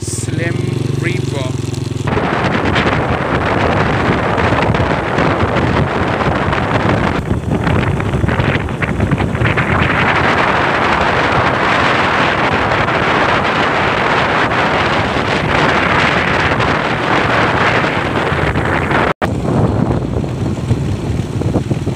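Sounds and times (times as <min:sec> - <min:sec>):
low engine drone: 0:00.0 - 0:21.9
wind rushing over microphone: 0:00.0 - 0:21.9.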